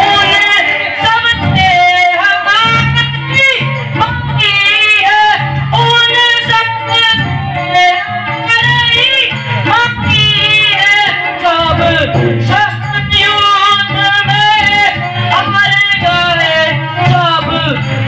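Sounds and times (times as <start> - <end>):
instrumental accompaniment: 0.0 - 18.0.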